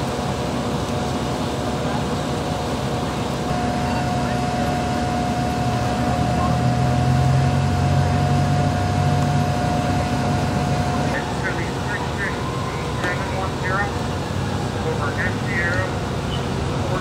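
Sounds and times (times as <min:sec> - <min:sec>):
fire engine running: 0:00.0 - 0:17.0
steady mechanical whine: 0:00.0 - 0:17.0
deep hum: 0:03.5 - 0:12.9.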